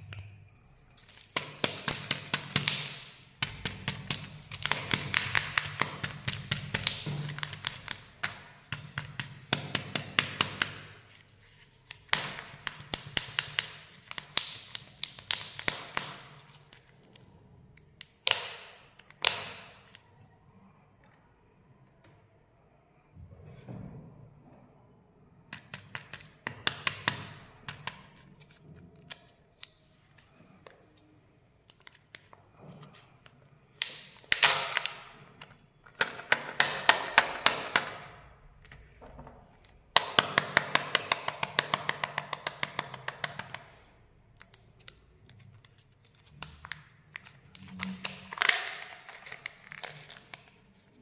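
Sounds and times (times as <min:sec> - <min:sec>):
plastic film crackling and crinkling: 0:44.3 - 0:51.0.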